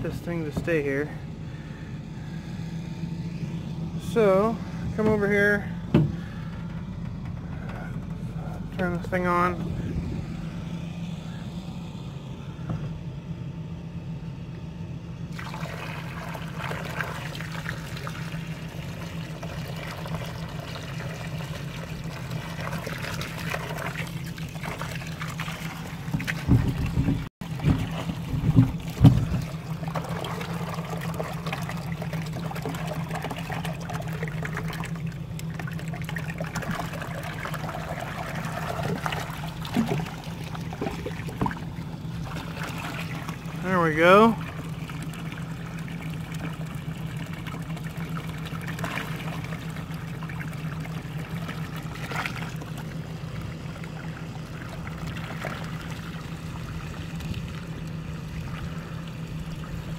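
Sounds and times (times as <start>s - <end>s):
steady low hum: 0.0s - 59.9s
water gushing into a tub: 15.3s - 59.9s.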